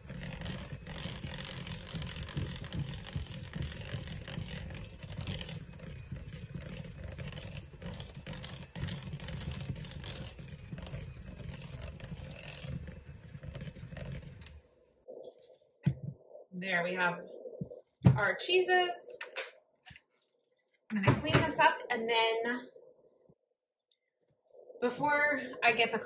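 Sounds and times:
electric hand mixer running: 0.0s - 14.5s.

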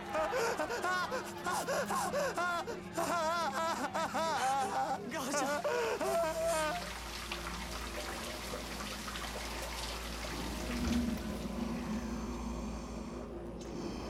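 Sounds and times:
faint low hum: 0.0s - 14.0s
water rushing: 6.0s - 13.3s.

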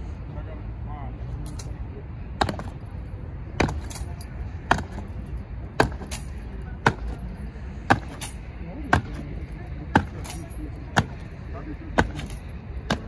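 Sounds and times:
boot heels striking stone paving: 2.4s - 2.8s.

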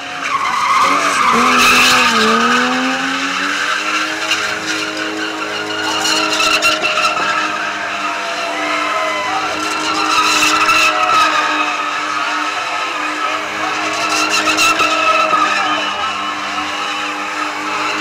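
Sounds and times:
car engine revving high: 0.0s - 18.0s
tyres squealing: 0.0s - 18.0s.

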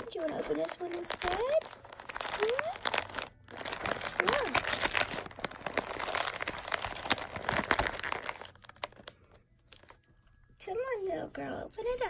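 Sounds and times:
wrapping paper crinkling: 0.0s - 9.4s.

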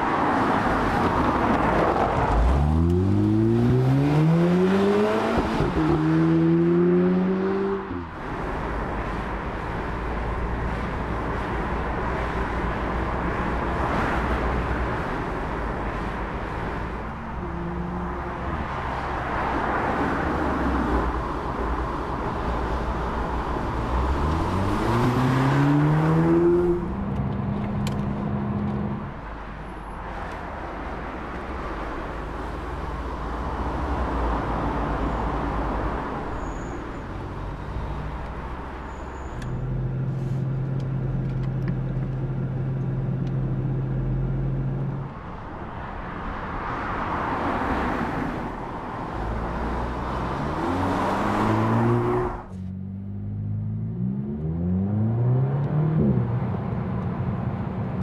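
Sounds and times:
car engine revving: 2.1s - 8.1s, 23.8s - 29.1s.

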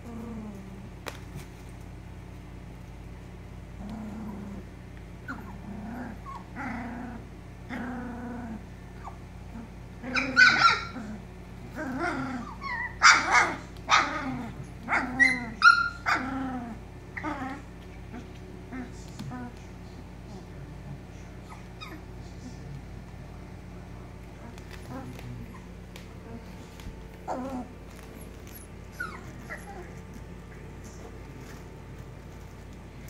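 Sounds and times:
puppies barking and growling: 3.7s - 19.6s, 21.4s - 22.6s, 24.1s - 33.0s.

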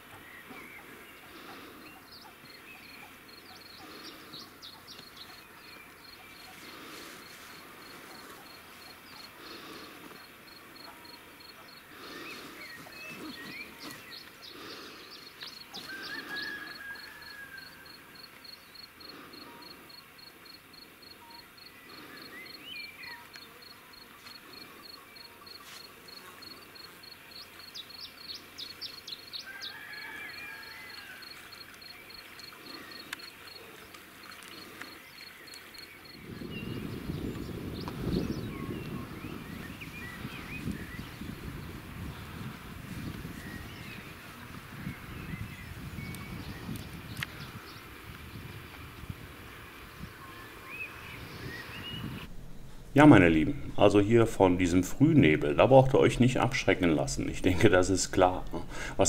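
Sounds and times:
small birds calling and trilling: 0.0s - 54.2s
insect chirping: 1.3s - 42.3s, 49.5s - 54.2s.

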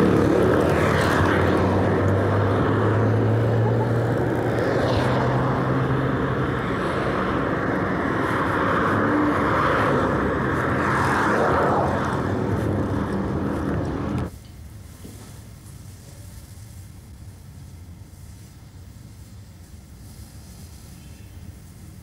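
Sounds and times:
cars driving past: 0.0s - 14.3s.

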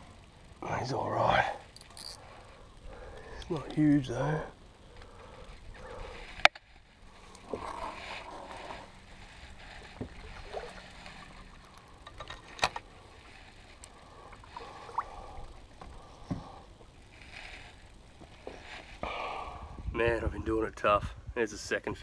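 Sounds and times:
water sloshing around kayak hull: 5.0s - 19.0s.

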